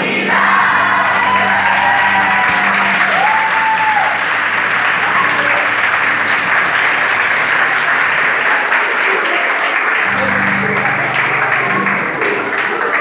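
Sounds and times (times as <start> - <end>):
crowd clapping and cheering: 0.0 - 13.0
person cheering: 0.7 - 5.8.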